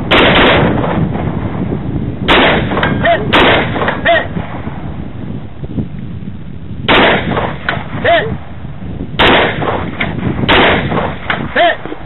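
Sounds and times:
rifle shots: 0.0 - 1.5, 2.3 - 4.8, 6.9 - 8.0, 9.2 - 11.6.

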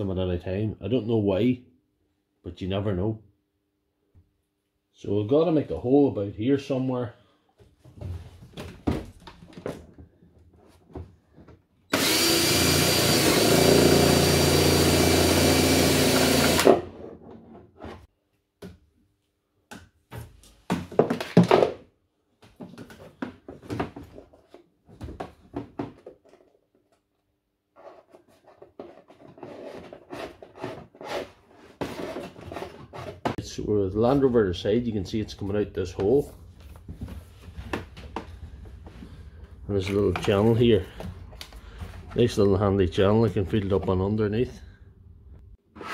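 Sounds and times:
knocks and handling clatter: 7.6 - 11.8, 20.0 - 27.1
cordless drill boring plastic: 11.9 - 16.8.

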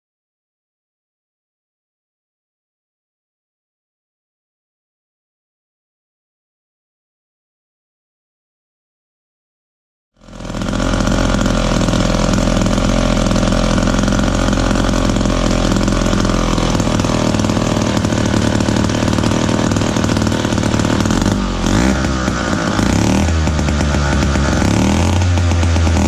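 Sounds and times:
two-stroke chainsaw engine running: 10.2 - 26.0.

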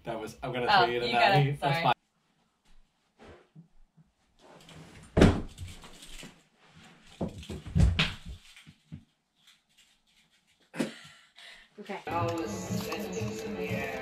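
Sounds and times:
thuds and scuffling: 4.7 - 6.0, 6.8 - 9.0.

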